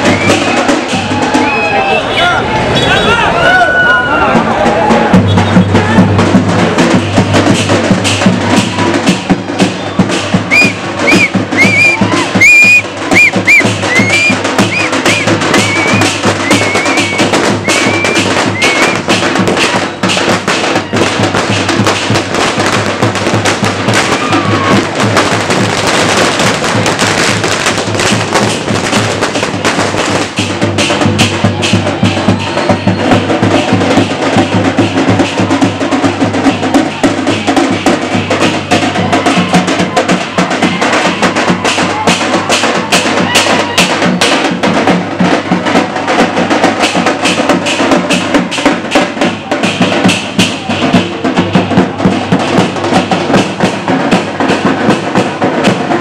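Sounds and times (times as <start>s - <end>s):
fast rhythmic drumming: 0.0s - 1.8s, 4.1s - 56.0s
short shrill whistles: 10.5s - 19.0s.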